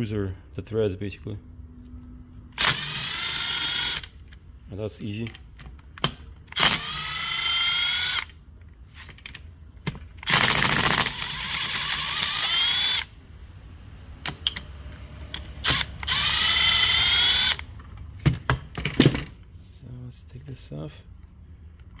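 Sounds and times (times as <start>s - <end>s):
impact driver motor whine: 2.6s - 4.2s, 6.6s - 8.3s, 10.2s - 13.1s, 15.6s - 17.6s
impact driver rattling: 9.8s - 13.1s.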